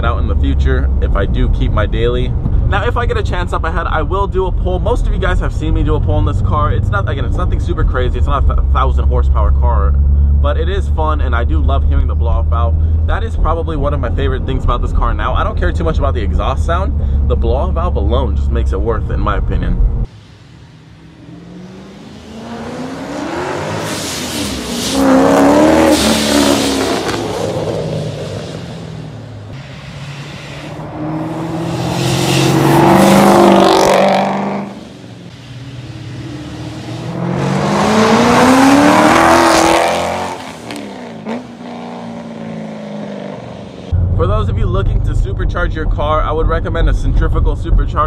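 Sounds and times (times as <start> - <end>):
car accelerating past: 20.7 - 44.2.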